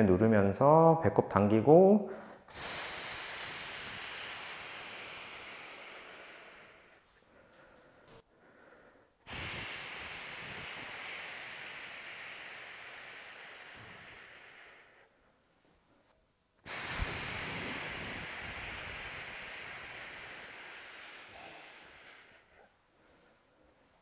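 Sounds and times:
person exhaling forcefully: 2.1 - 15.2, 16.6 - 22.7.

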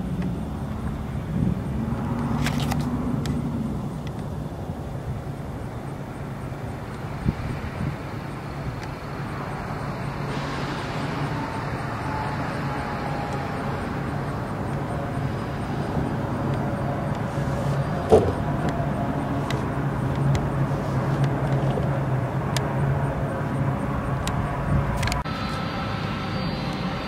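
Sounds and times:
low engine rumble: 0.0 - 27.0.

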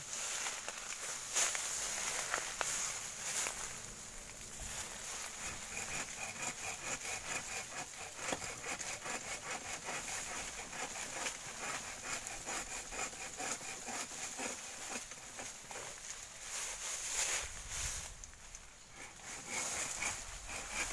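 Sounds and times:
hand saw cutting bamboo: 4.8 - 16.1, 18.9 - 20.9.

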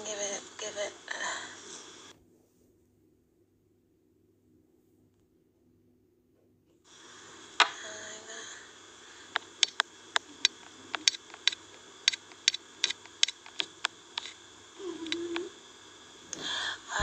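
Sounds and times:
sharp irregular clicks: 9.3 - 15.5.

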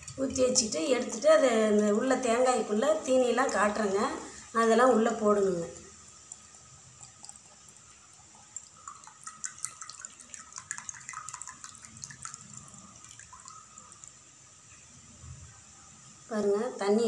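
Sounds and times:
water trickling and dripping: 0.0 - 15.8.

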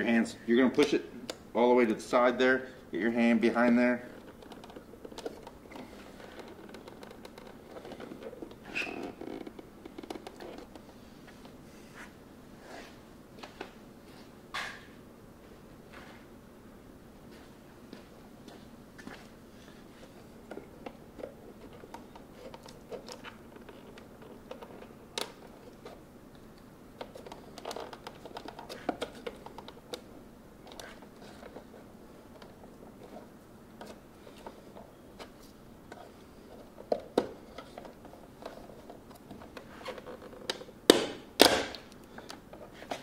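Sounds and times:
plastic clicks and scratches: 4.2 - 10.8, 20.5 - 26.0, 27.0 - 30.0, 30.6 - 33.2.

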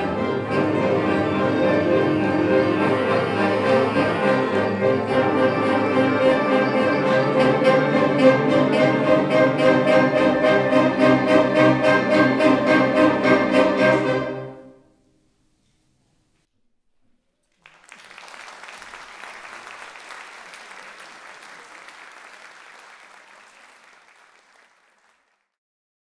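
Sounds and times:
audience applause: 17.5 - 25.6.

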